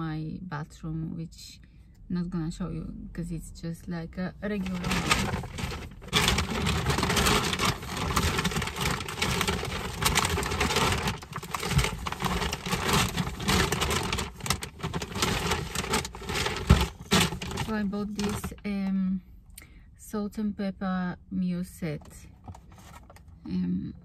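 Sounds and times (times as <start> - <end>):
plastic bags rustling: 4.4 - 18.6.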